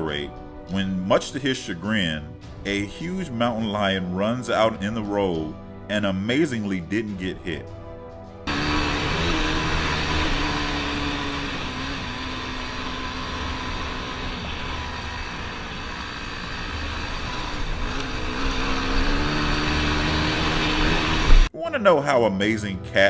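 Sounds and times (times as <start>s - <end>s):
dirt bike engine: 8.4s - 21.5s
wind and road noise: 8.5s - 21.5s.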